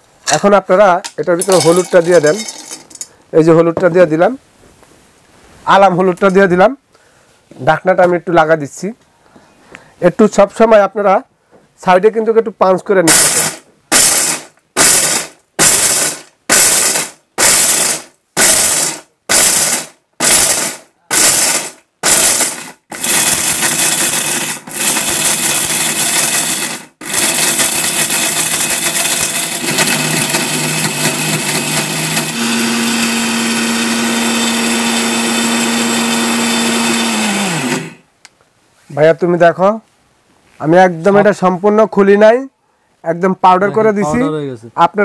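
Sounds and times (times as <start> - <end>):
mixer grinder grinding: 1.4 - 3.0, 13.1 - 38.0.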